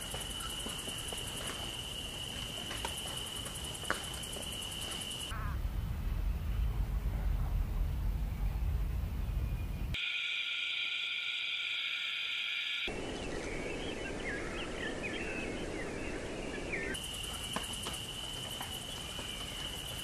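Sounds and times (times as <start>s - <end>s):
high insect drone: 0.0s - 5.4s, 10.0s - 14.4s, 16.9s - 20.0s
high insect trill: 0.0s - 5.4s, 10.0s - 14.4s, 16.9s - 20.0s.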